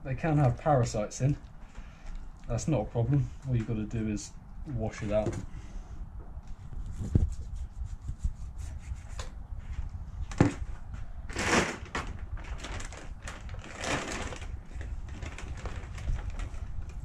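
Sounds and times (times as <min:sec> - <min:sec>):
rustling: 0:06.5 - 0:17.0
fish handling noises: 0:11.3 - 0:17.0.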